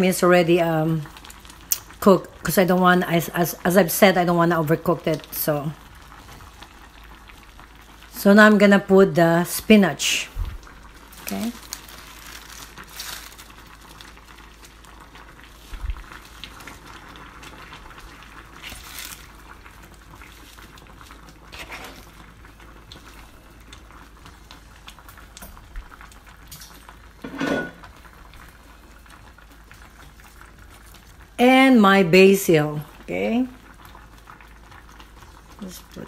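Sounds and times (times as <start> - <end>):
broth bubbling in saucepan: 0.0 - 36.0.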